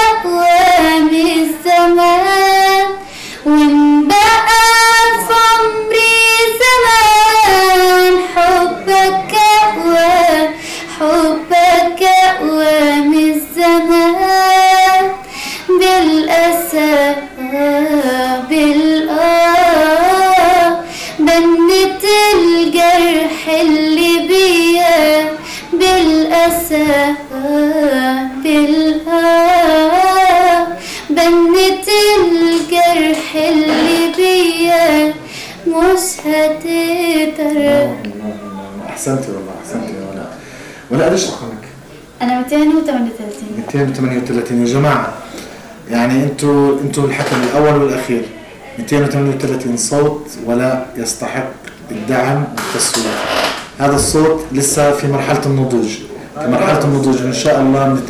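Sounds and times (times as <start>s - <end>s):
woman singing unaccompanied: 0.0s - 38.1s
singer breaths: 3.0s - 3.5s, 10.6s - 11.0s, 15.2s - 15.7s, 20.8s - 21.2s, 25.4s - 25.8s, 30.8s - 31.1s, 35.2s - 35.7s, 40.4s - 40.9s, 45.2s - 45.8s.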